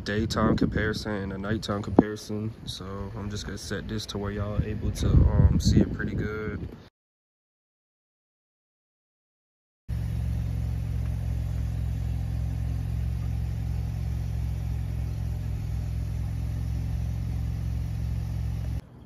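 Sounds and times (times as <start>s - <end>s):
car engine idling: 9.9s - 18.8s.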